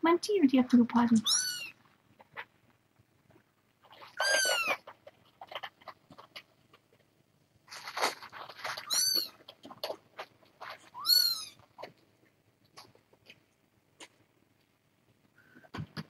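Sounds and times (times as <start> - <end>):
kittens meowing: 1.2 - 1.7, 4.2 - 4.8, 8.9 - 9.4, 10.9 - 11.6
brief rustle: 7.7 - 10.0.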